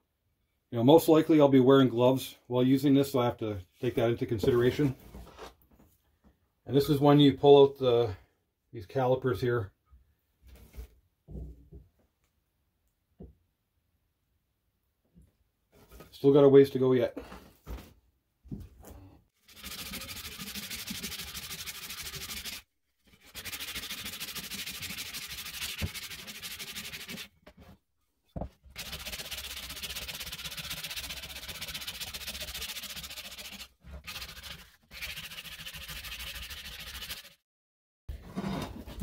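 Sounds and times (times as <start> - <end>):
sandpaper rubbing on wood: 19.4 - 27.3, 28.8 - 37.4.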